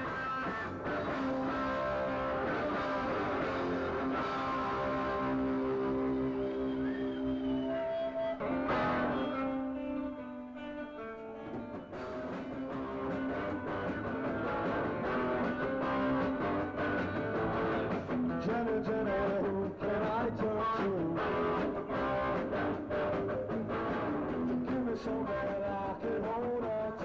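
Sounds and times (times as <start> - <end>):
electric guitar lead line: 0.0 - 27.0
steady drum beat: 11.5 - 27.0.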